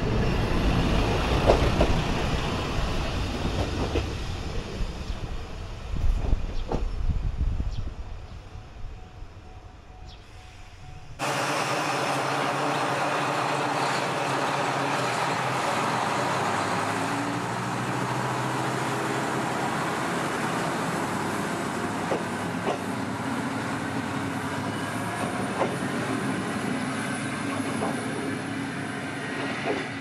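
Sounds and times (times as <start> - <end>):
diesel railcar engine droning: 0.0 - 30.0.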